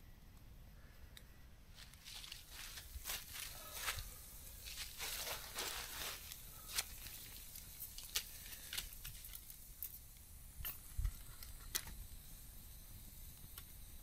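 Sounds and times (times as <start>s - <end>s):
campfire crackling: 0.3s - 14.0s
rustling and crinkling: 1.7s - 10.1s.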